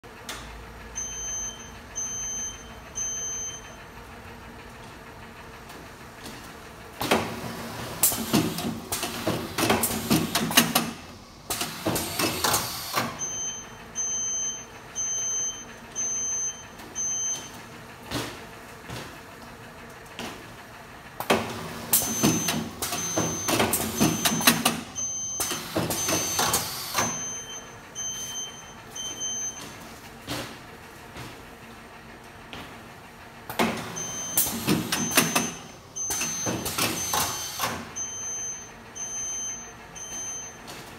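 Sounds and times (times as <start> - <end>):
short high beeps: 1.0 - 3.8, 25.0 - 29.7, 34.0 - 40.6.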